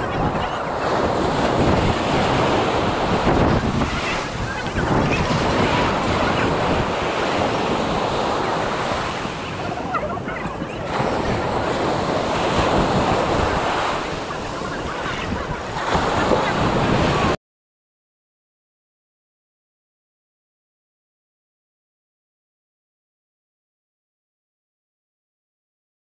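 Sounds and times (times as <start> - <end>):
ocean surf washing onto beach: 0.0 - 17.4
wind buffeting microphone: 0.0 - 17.4.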